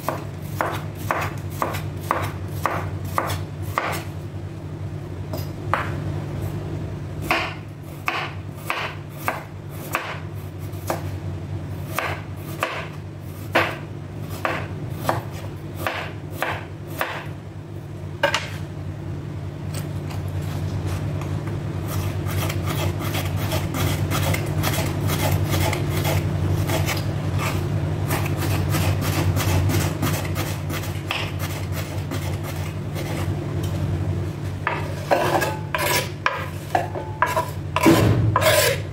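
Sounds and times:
knife chopping on wooden board: 0:00.0 - 0:04.1, 0:07.2 - 0:10.2, 0:10.8 - 0:11.1, 0:11.9 - 0:13.8, 0:14.4 - 0:17.3, 0:28.1 - 0:32.7, 0:34.7 - 0:38.8
knife slicing carrots: 0:00.0 - 0:04.1, 0:37.3 - 0:38.8
steady low hum: 0:00.0 - 0:38.9.

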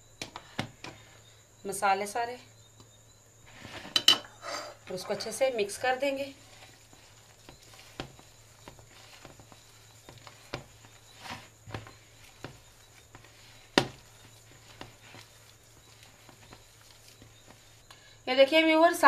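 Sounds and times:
faint steady hum: 0:00.0 - 0:19.0
light knocks and soft scrapes: 0:03.4 - 0:04.2, 0:06.4 - 0:18.0
hand mixing food in plastic bowl: 0:04.9 - 0:19.0.

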